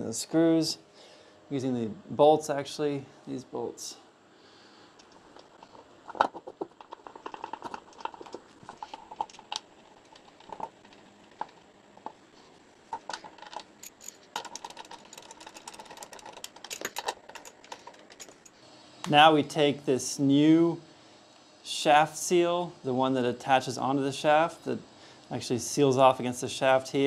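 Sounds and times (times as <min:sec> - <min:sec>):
metal bolts clicking and rattling: 0:05.0 - 0:12.2, 0:12.8 - 0:18.6.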